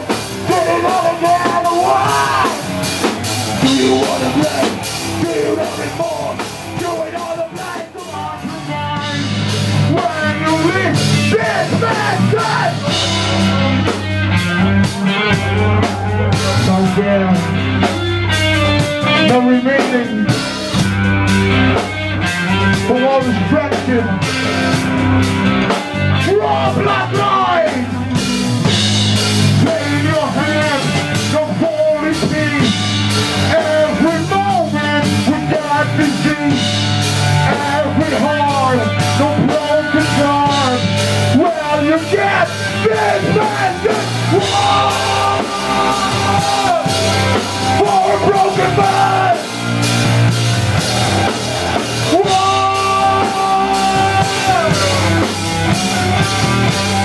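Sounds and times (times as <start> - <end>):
bass guitar: 0.0 - 57.0
drum kit: 0.0 - 57.0
electric guitars: 0.0 - 57.0
vocalist singing: 0.4 - 2.9, 3.5 - 14.1, 15.1 - 17.7, 26.1 - 28.1, 29.5 - 36.8, 37.4 - 49.9, 51.6 - 56.7.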